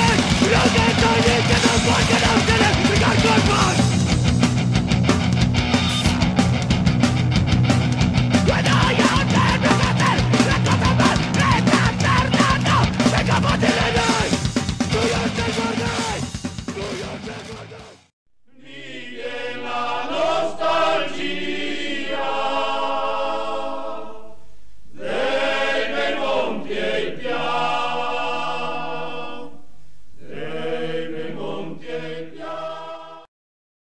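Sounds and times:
choir singing slow chant: 0.0 - 4.0, 13.2 - 16.2, 18.5 - 33.3
loud punk music: 0.0 - 18.1.

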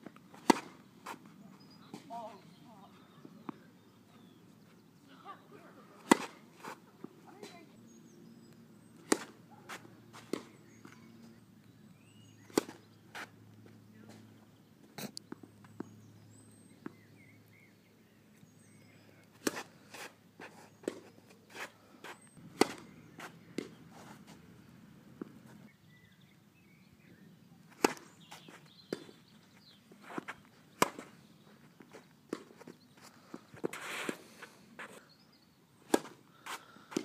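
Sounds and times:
birds chirping faintly: 0.0 - 37.0
tennis ball bouncing: 0.4 - 0.8, 6.0 - 7.2, 9.0 - 11.1, 12.5 - 12.8, 19.4 - 19.7, 22.4 - 23.9, 27.7 - 29.2, 30.1 - 31.2, 35.9 - 36.2
tennis racket hitting ball: 0.4 - 0.8, 6.0 - 6.4, 9.0 - 10.5, 22.5 - 23.0, 27.7 - 28.1, 30.8 - 31.1, 35.9 - 37.0.

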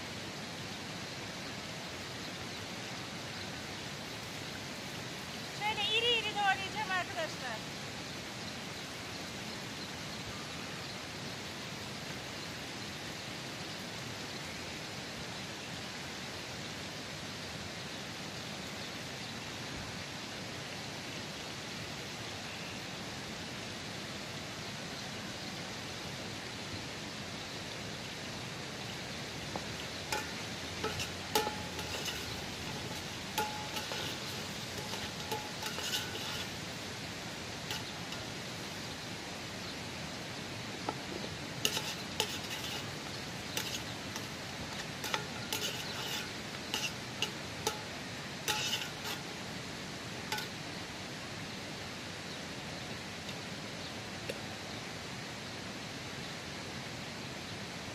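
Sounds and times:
stream rushing: 0.0 - 18.3, 19.0 - 54.2
metal utensil clinking on dishes: 29.7 - 36.8, 37.7 - 38.4, 41.6 - 49.3, 50.3 - 50.6.

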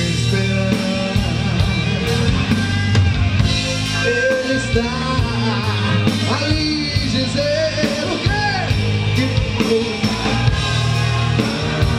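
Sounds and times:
man singing into a microphone: 0.0 - 2.3, 3.9 - 10.6
drum-kit beat: 0.0 - 11.9
live rock band playing: 0.0 - 11.9.

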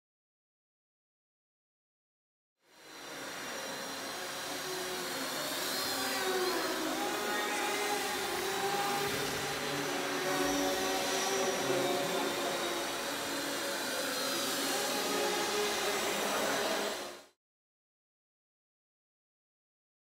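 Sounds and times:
model plane motors whining: 2.7 - 17.3.

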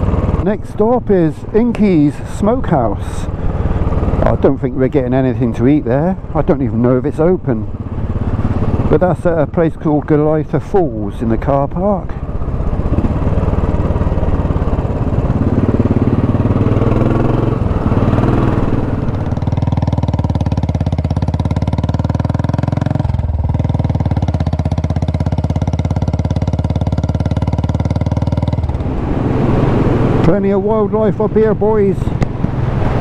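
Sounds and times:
motorcycle engine cruising: 0.0 - 33.0
wind rush: 31.5 - 33.0.

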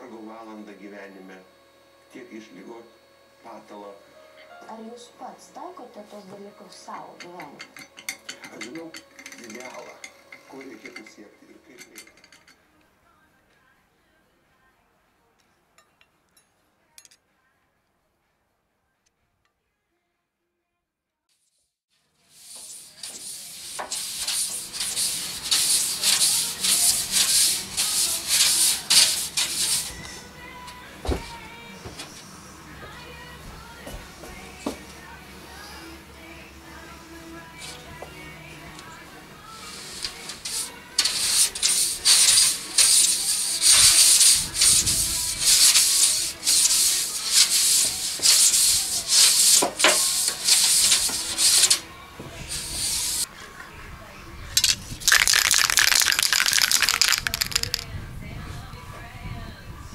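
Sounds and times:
scratchy rubbing strokes inside tube: 22.3 - 30.0, 39.6 - 51.8.

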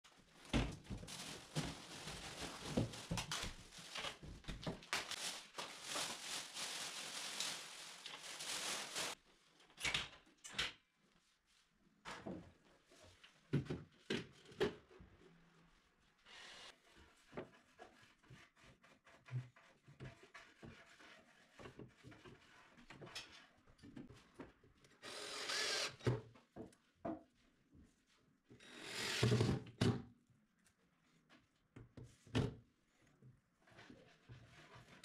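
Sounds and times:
plastic wrapping rustling: 0.4 - 9.2.

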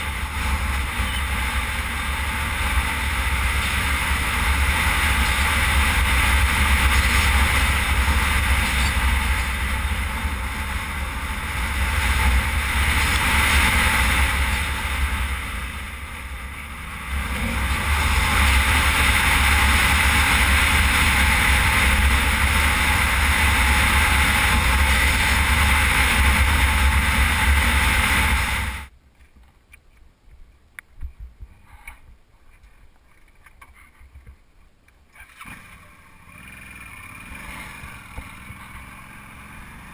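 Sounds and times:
wind rushing over microphone: 0.0 - 28.9
motorcycle engine and tyres rumbling: 0.0 - 39.9.

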